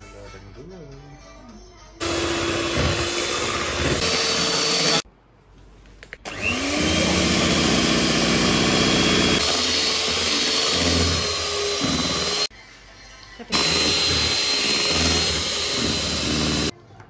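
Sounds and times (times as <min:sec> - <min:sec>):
electric hand mixer running: 0:02.0 - 0:05.0, 0:06.3 - 0:12.5, 0:13.5 - 0:16.7.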